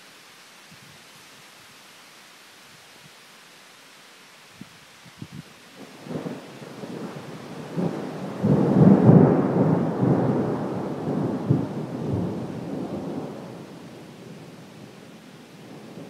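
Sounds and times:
thunder rumbling: 0:05.8 - 0:16.0.

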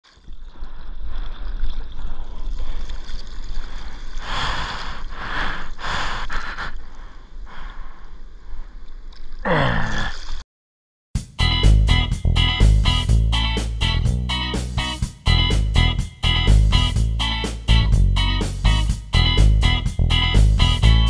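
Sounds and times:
water sloshing and splashing: 0:00.0 - 0:05.8
paddle stroke splashes: 0:00.0 - 0:07.4.

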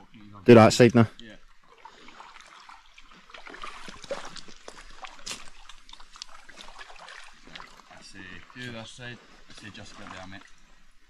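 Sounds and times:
water sloshing against hull: 0:01.1 - 0:11.0
oar strokes splashing: 0:01.4 - 0:11.0.

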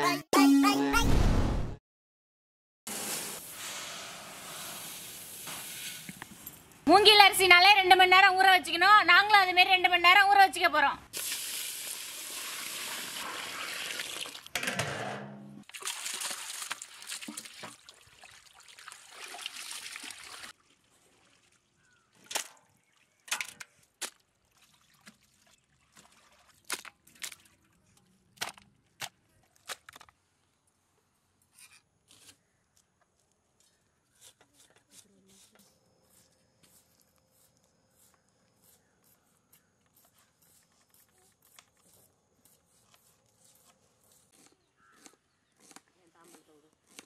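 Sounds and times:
water pouring over rice: 0:11.2 - 0:14.5.

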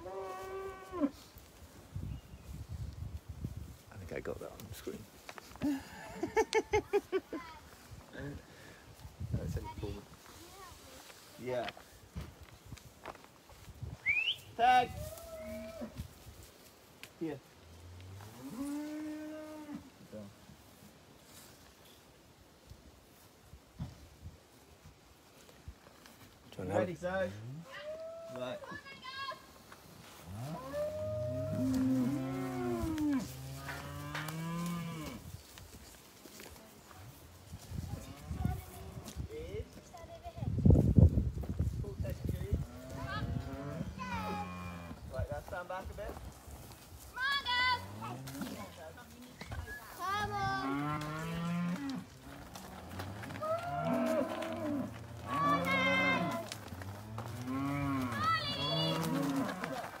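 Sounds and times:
cows mooing: 0:30.3 - 0:35.2, 0:50.6 - 0:59.9.

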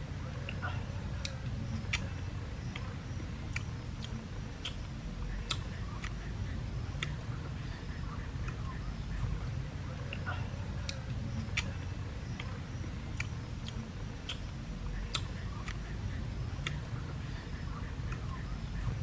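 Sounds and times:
low steady rumble: 0:00.0 - 0:19.0.

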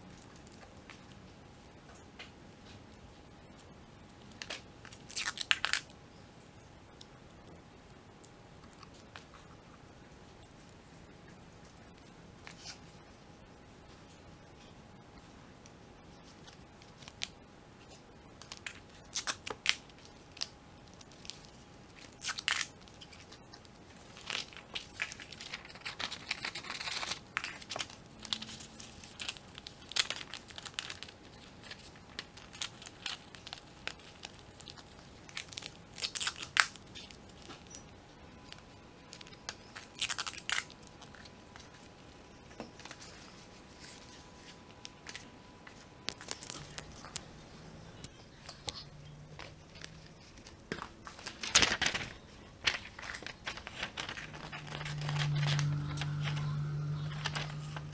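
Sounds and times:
paper rustling and crinkling: 0:16.1 - 0:37.8, 0:38.5 - 0:57.9.

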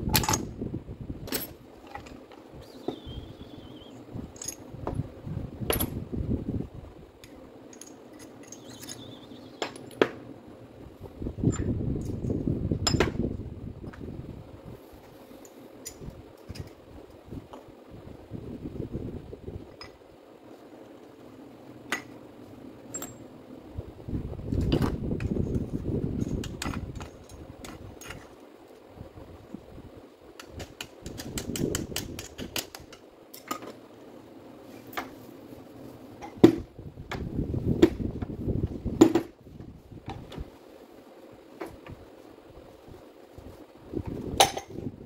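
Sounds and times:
tool parts clicking and knocking: 0:00.1 - 0:00.5, 0:01.2 - 0:03.1, 0:04.3 - 0:05.0, 0:07.2 - 0:10.2, 0:11.5 - 0:13.2, 0:15.4 - 0:16.8, 0:22.9 - 0:23.3, 0:26.2 - 0:28.4, 0:30.3 - 0:33.8, 0:44.4 - 0:44.8.

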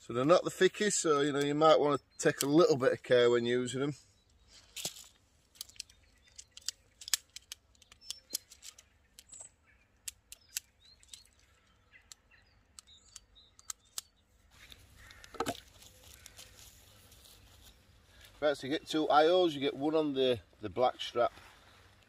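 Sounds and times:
tent pole sections clicking: 0:02.2 - 0:02.8, 0:04.6 - 0:16.8.

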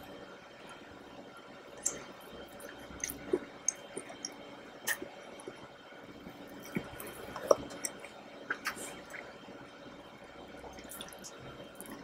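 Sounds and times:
close chewing with wet mouth smacks: 0:06.6 - 0:09.3.

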